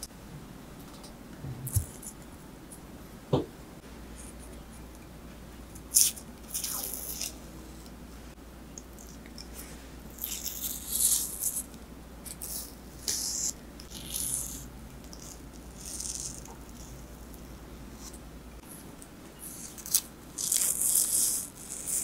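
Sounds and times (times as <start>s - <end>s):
knife scraping and tearing skin: 10.1s - 11.7s, 19.5s - 22.0s.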